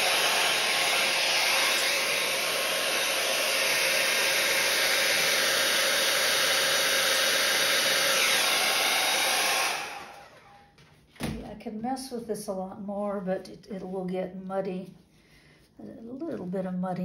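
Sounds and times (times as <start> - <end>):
hair dryer blowing: 0.0 - 10.7.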